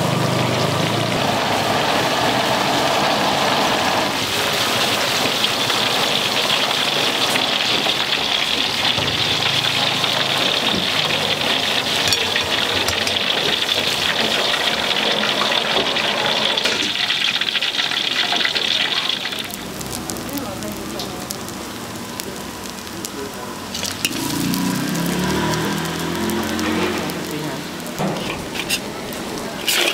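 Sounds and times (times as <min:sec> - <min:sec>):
rice sizzling in a wok: 0:00.0 - 0:29.9
scattered clicks: 0:19.4 - 0:28.0.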